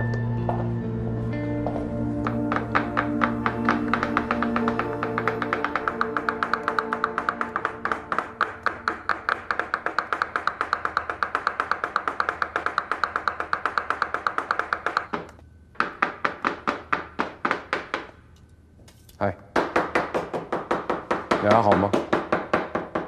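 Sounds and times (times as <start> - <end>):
knife chopping on cutting board: 2.3 - 15.0.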